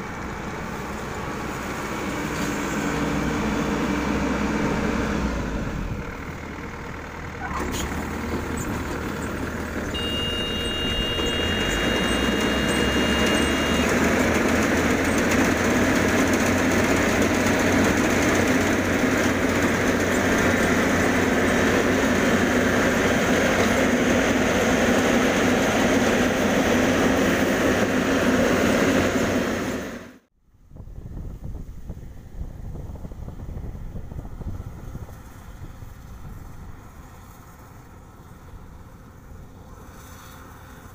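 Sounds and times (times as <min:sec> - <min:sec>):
combine harvester running: 0:00.0 - 0:30.2, 0:31.6 - 0:40.9
high steady whine: 0:10.0 - 0:14.1.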